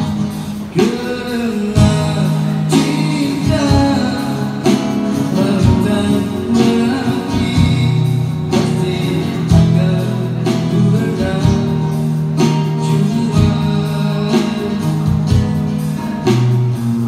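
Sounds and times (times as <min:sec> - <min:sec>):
man singing: 0:00.0 - 0:16.4
acoustic guitar strumming: 0:00.0 - 0:17.0.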